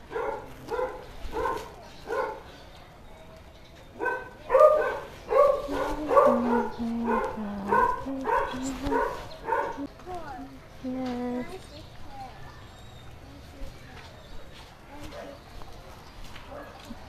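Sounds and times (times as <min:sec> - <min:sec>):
dog barking: 0:00.0 - 0:02.5, 0:04.0 - 0:09.9, 0:16.5 - 0:16.8.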